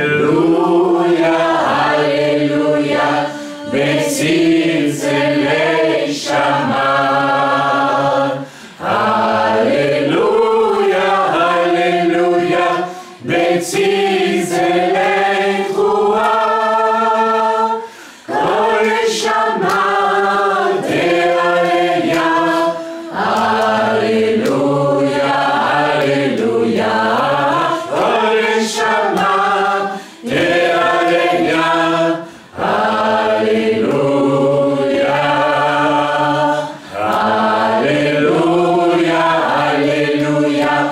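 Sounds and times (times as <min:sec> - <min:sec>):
group chanting in long notes: 0:00.0 - 0:40.9.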